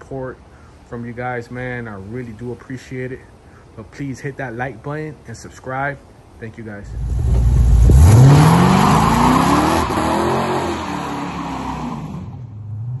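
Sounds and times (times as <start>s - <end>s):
tyre noise hiss: 0.0s - 12.4s
car engine accelerating: 6.9s - 13.0s.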